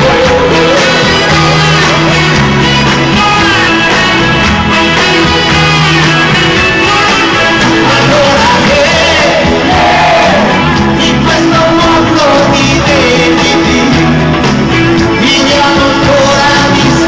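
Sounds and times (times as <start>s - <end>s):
live pop-rock band playing: 0.0s - 17.0s
male lead vocal: 0.0s - 17.0s.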